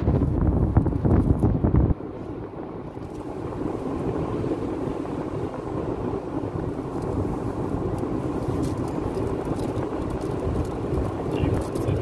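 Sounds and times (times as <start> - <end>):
car cabin road noise: 0.0 - 12.0.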